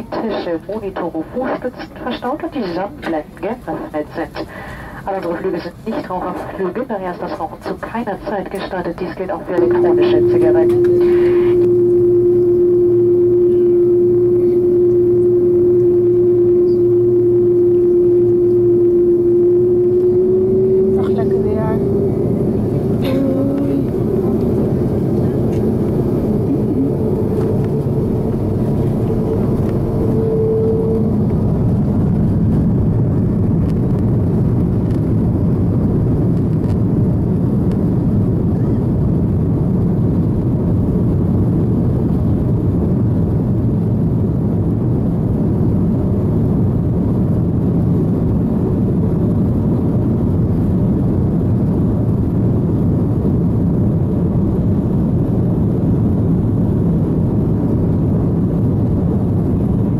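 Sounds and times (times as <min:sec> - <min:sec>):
jet engines rumbling: 0:00.0 - 0:59.9
short steady tone: 0:09.1 - 0:32.4.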